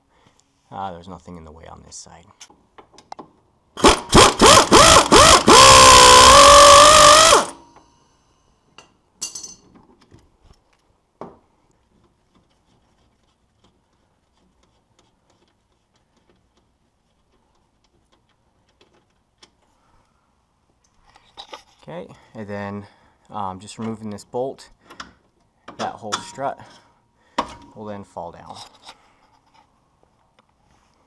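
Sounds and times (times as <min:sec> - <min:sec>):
pneumatic air ratchet whining: 0:03.8 - 0:07.6.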